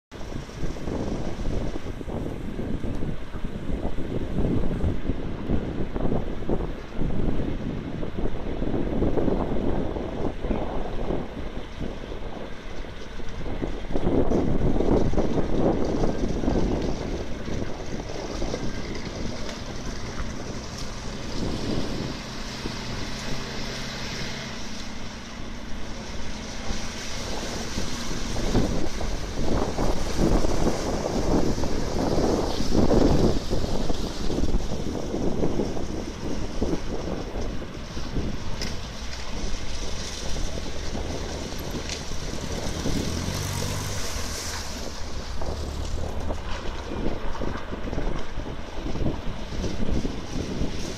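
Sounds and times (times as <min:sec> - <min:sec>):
truck engine running: 0:00.2 - 0:50.9
river water rushing and splashing: 0:15.2 - 0:37.2, 0:37.8 - 0:47.7.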